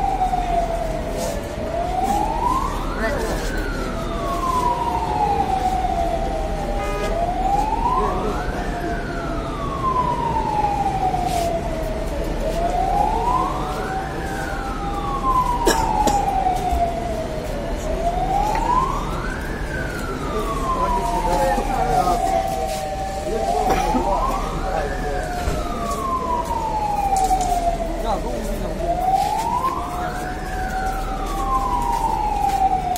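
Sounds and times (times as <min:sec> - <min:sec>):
fire engine siren wailing: 0:00.0 - 0:32.9.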